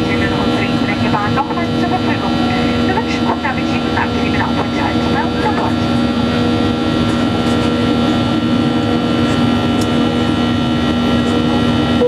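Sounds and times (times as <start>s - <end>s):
airliner cabin engine drone: 0.0s - 12.0s.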